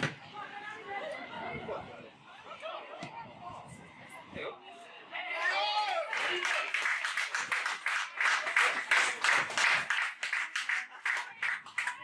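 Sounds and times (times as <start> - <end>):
spectators clapping: 5.7 - 12.0.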